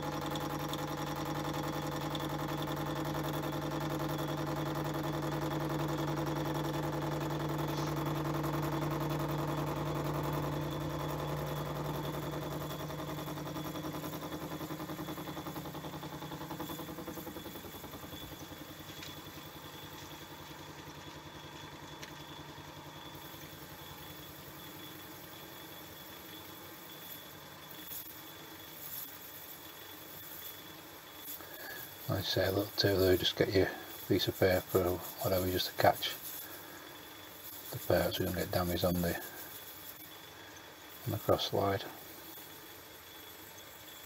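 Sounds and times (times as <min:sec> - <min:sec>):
metal lathe humming: 0:00.0 - 0:27.7.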